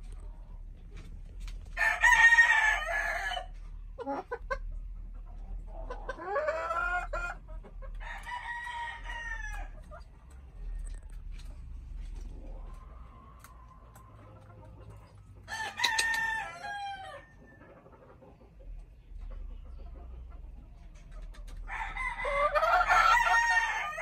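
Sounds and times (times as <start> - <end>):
chicken calling: 5.4 - 10.2, 21.1 - 24.0.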